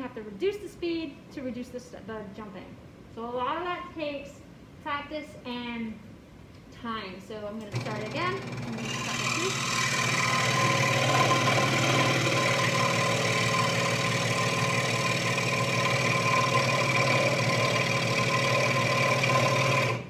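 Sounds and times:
scroll saw humming and whining: 7.7 - 20.0.

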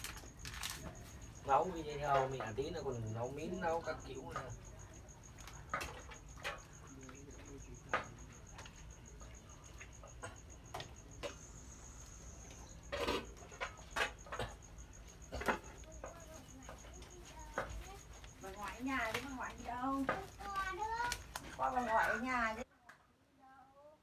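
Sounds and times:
cricket trilling: 0.0 - 22.7
knocks and clicks at cooking pot: 12.7 - 21.7.

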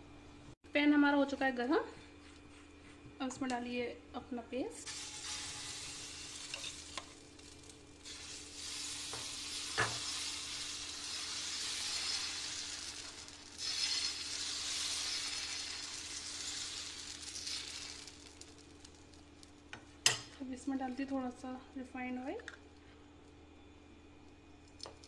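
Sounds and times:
batter sizzling on griddle: 4.8 - 20.2.

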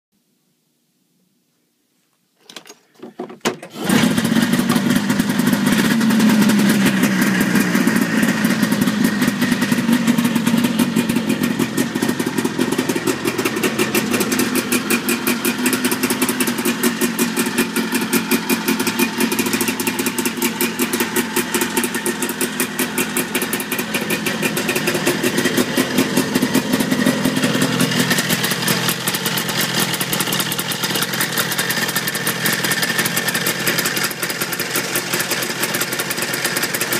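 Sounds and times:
snowmobile pull-start: 2.4 - 36.9
snowmobile engine idling: 3.7 - 36.9.

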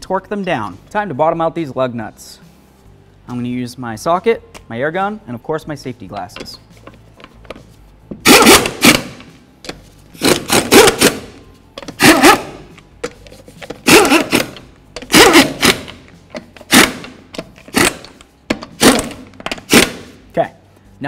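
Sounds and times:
pneumatic impact wrench bursts: 8.2 - 9.3, 10.2 - 11.4, 13.8 - 16.0, 16.6 - 20.2.

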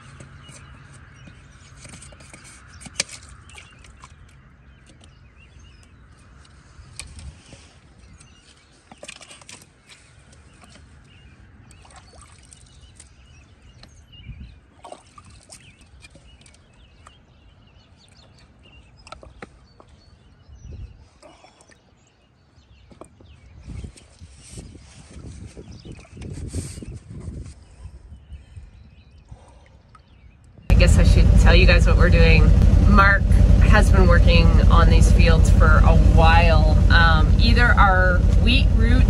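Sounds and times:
plastic pipe scraping and clicking: 0.0 - 4.0
low steady rumble: 30.7 - 39.0.

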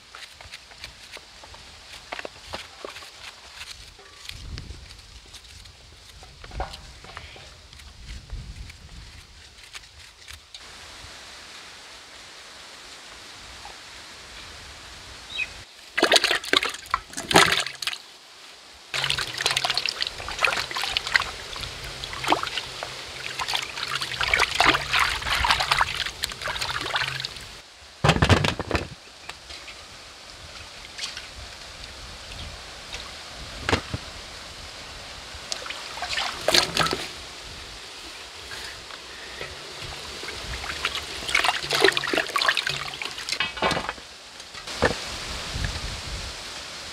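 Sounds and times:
water splashing and trickling: 15.8 - 18.1, 18.9 - 27.6, 30.4 - 46.0.

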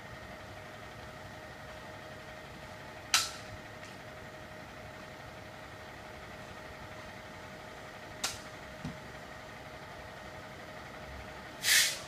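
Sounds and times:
truck engine idling: 0.0 - 12.0
short loud hiss: 11.6 - 12.0.

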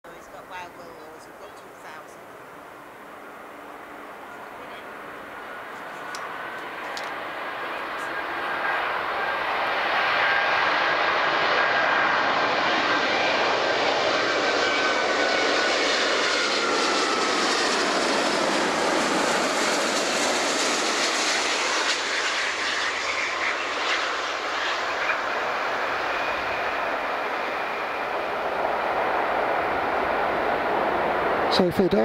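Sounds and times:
jet engines rushing and whining: 0.1 - 32.0.

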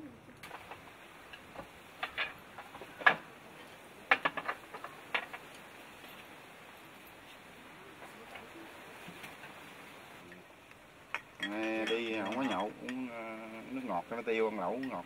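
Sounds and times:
dishes clinking on table: 11.1 - 13.1.

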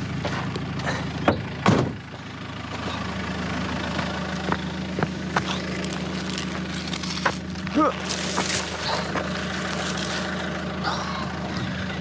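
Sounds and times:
car engine idling: 0.0 - 12.0
loud thump: 1.3 - 2.0.

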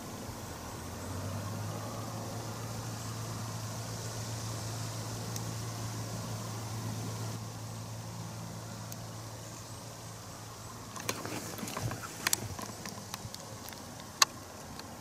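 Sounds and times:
low engine-like hum: 0.0 - 15.0
sharp clicks and rustles: 10.9 - 15.0.

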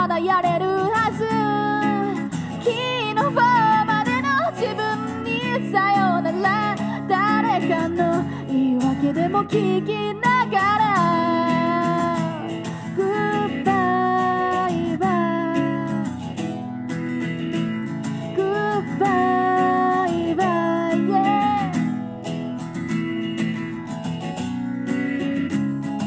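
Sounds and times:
woman singing long notes: 0.0 - 16.0, 18.4 - 21.9
acoustic guitar strumming: 0.0 - 26.0.

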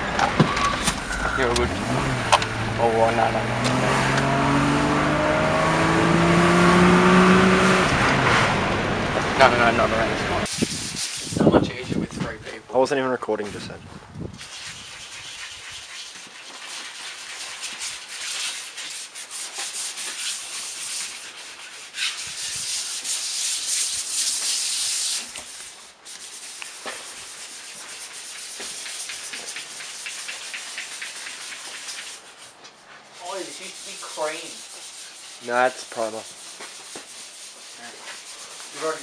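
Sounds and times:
sandpaper rasping on car panel: 10.5 - 11.7, 14.4 - 39.0.

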